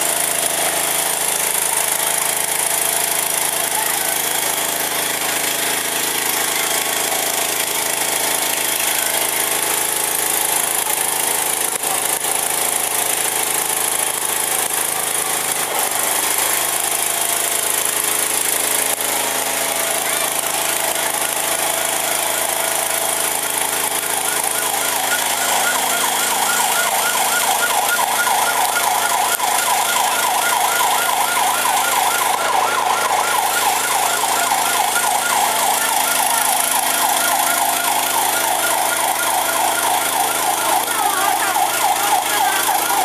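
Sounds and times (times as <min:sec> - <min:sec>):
fire truck engine and pump running: 0:00.0 - 0:43.0.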